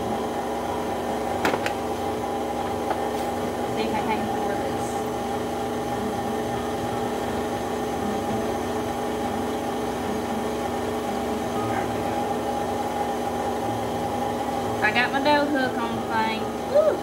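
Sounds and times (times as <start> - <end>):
stand mixer motor whining hum: 0.0 - 17.0.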